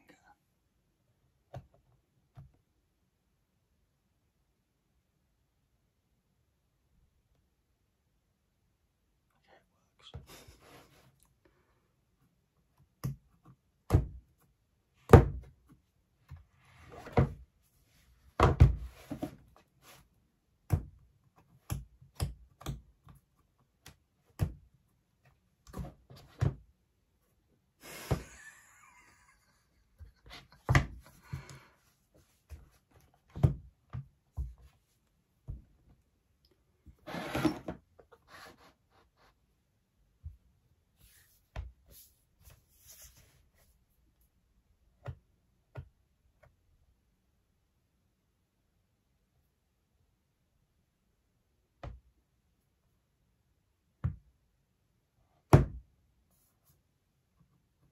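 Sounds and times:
rubbing and sliding: 37.0s - 39.5s, 40.9s - 43.9s.

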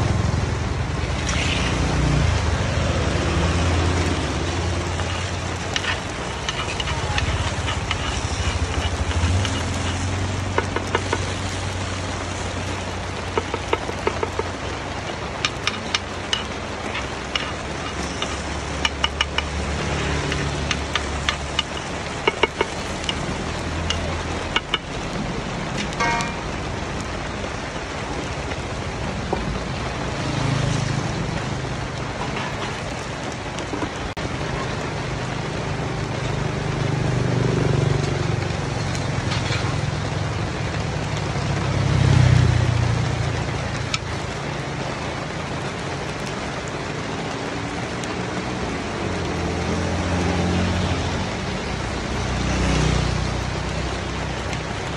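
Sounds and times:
road traffic rumble: 0.0s - 54.9s
metal scoop scraping metal pan: 4.8s - 11.3s, 15.5s - 19.5s.

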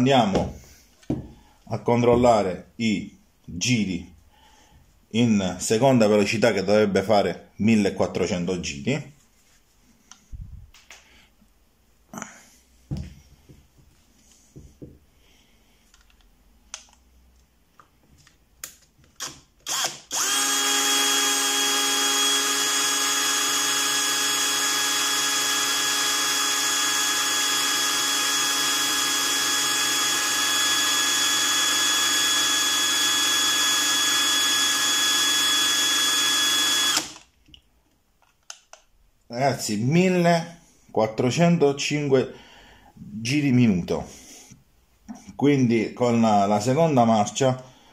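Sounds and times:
cordless drill whining: 19.2s - 37.3s.

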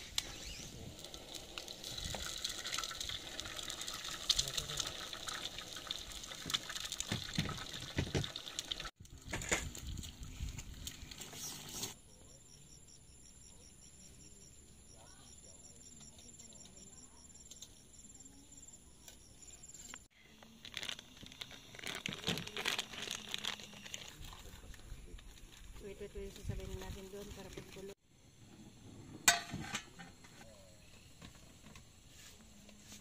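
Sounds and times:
insects trilling: 10.9s - 24.7s.

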